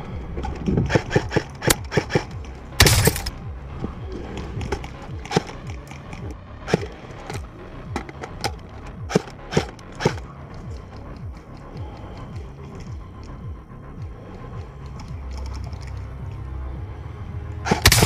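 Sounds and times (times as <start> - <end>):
sharp cracks: 0.9 - 3.4, 17.7 - 18.0.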